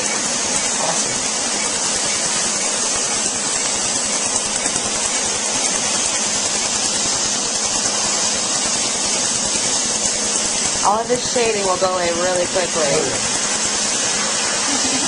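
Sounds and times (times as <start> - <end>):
air hissing from hose nozzle: 0.0 - 15.0.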